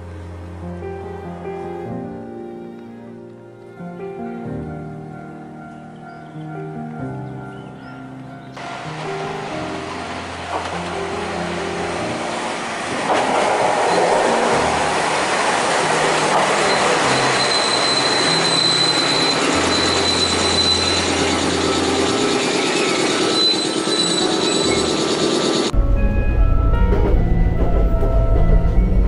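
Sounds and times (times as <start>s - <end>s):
high wheel squeal: 8.6s - 25.7s
train wheel and rail noise: 8.6s - 25.8s.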